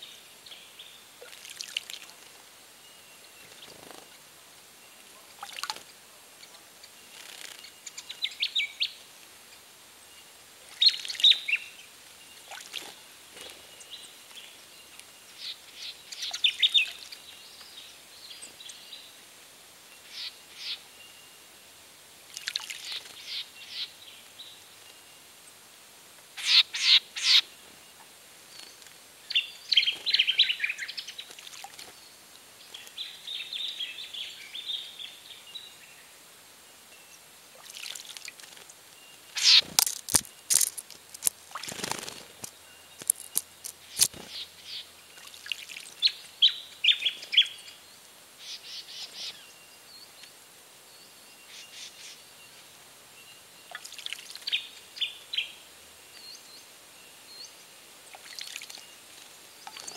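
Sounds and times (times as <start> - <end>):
small birds chirping: 2.9 - 19.2, 20.0 - 21.2, 22.4 - 25.0, 26.4 - 36.2, 36.8 - 59.9
water splashes: 37.5 - 38.7
wing flutters: 39.4 - 44.4.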